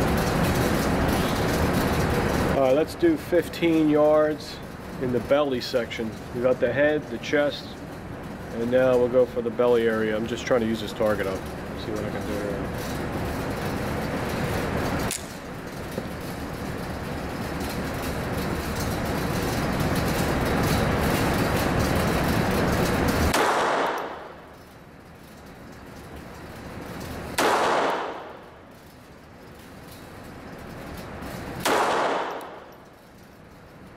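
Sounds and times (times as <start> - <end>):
pistol shots: 23.3 - 24.2, 27.4 - 28.3, 31.6 - 32.6.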